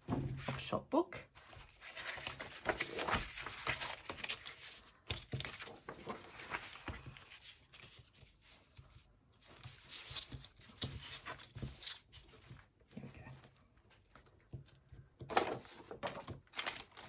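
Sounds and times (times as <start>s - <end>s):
paper rustling and sliding: 1.4s - 12.6s, 15.2s - 17.0s.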